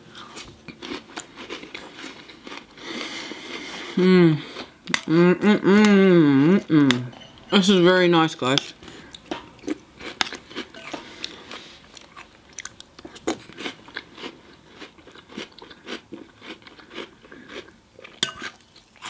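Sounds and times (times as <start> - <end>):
chewing and crunching: 0.1 - 5.1, 8.6 - 19.0
metal spoon clinking in glass bowl: 18.2 - 18.6.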